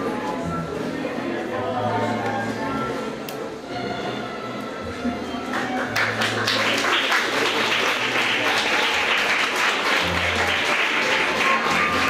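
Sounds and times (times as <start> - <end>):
music playing: 0.0 - 12.0
audience applauding: 5.5 - 12.0.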